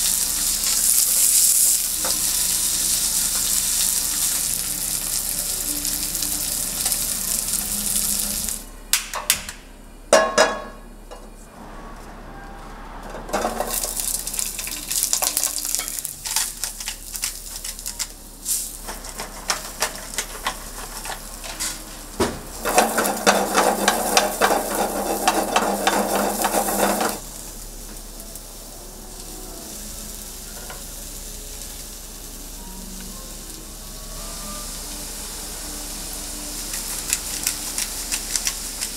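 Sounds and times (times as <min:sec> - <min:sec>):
steak sizzling: 0:00.0 - 0:08.7, 0:13.4 - 0:38.9
cooking utensils clicking and knocking: 0:08.9 - 0:11.3, 0:13.2 - 0:18.2, 0:18.8 - 0:27.2, 0:36.7 - 0:38.9.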